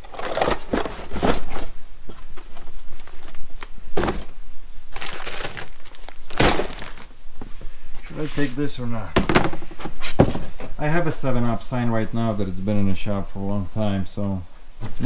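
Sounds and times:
scrapes rustles and knocks: 0.0 - 3.4, 7.4 - 8.6, 9.2 - 10.8
rummaging through boxes and packets: 0.0 - 8.4.

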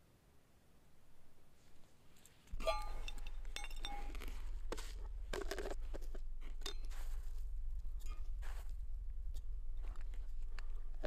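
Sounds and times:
small hard objects clinking: 2.5 - 8.6
steady low rumble: 2.5 - 11.0.

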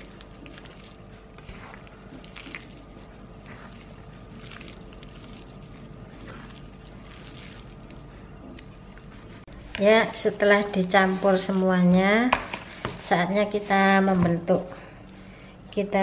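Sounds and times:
hand squishing raw meat: 0.0 - 9.8
faint steady hum: 0.0 - 16.0.

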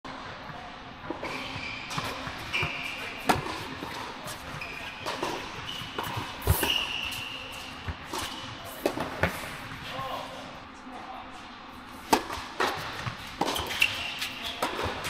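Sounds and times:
shoes squeaking on court: 1.2 - 9.9, 12.3 - 15.0
tennis ball struck and bouncing: 12.1 - 15.0.

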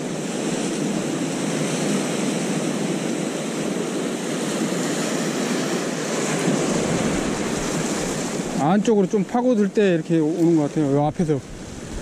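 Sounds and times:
surf against rocks: 0.0 - 12.0.

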